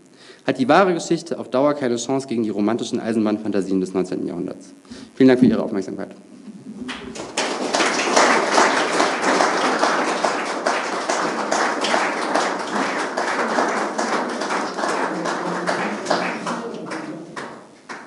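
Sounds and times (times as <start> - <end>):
audience applauding: 6.4 - 18.0.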